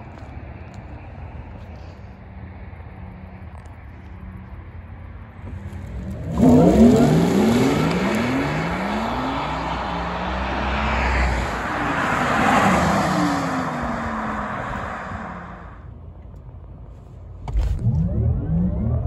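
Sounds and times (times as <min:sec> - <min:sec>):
tyre and road roar: 0:00.0 - 0:19.0.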